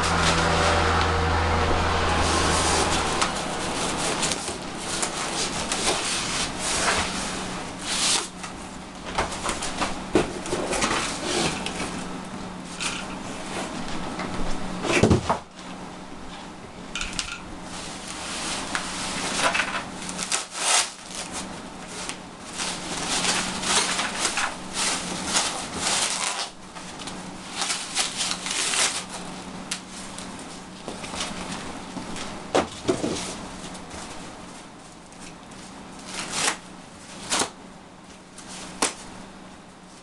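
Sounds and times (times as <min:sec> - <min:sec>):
plastic sleeves rustling and crinkling: 0:02.2 - 0:08.6, 0:17.7 - 0:39.1.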